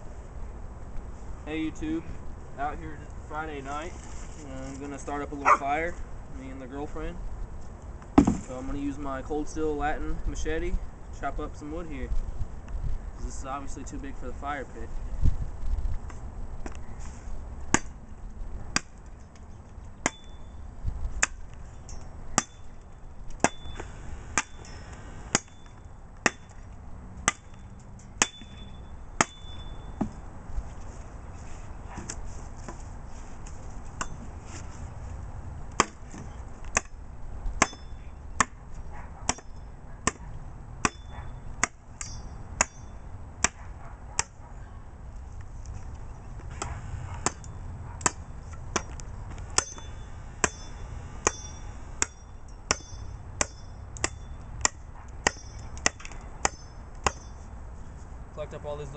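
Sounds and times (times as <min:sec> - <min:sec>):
machete chopping wood: 0:08.2 - 0:08.5, 0:17.7 - 0:18.0, 0:18.7 - 0:19.0, 0:23.4 - 0:24.6, 0:25.3 - 0:25.6, 0:26.2 - 0:26.6, 0:27.2 - 0:27.5, 0:28.2 - 0:28.5, 0:29.2 - 0:29.4, 0:35.7 - 0:37.0, 0:37.6 - 0:38.6, 0:39.3 - 0:40.2, 0:40.8 - 0:42.8, 0:43.4 - 0:43.6, 0:46.5 - 0:47.4, 0:48.0 - 0:57.3.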